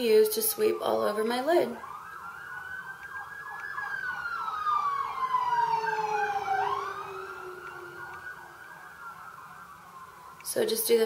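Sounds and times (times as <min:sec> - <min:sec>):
siren wailing: 0:00.6 - 0:10.6
siren yelping in quick sweeps: 0:03.2 - 0:09.6.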